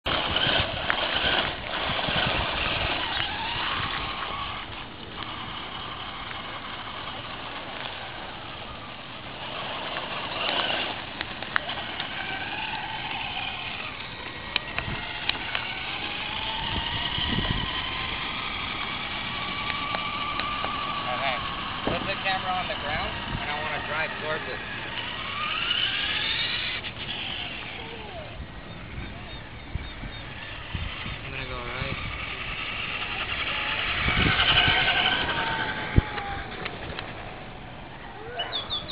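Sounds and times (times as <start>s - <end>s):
small wheels rattling on gravel: 0.1s - 29.3s, 30.0s - 38.9s
toy truck motor whine: 0.1s - 38.9s
sharp ticks: 9.8s - 18.9s, 19.6s - 22.3s.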